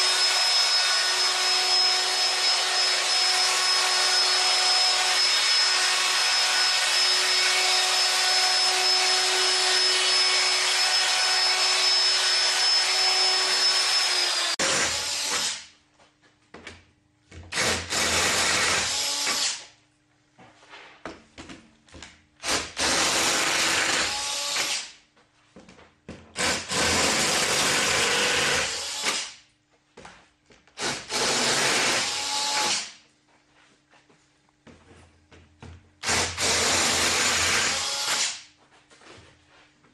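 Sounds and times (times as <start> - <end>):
electric drill boring into wood: 0.0 - 15.6, 17.5 - 19.6, 22.4 - 24.9, 26.4 - 29.3, 30.8 - 32.9, 36.0 - 38.4.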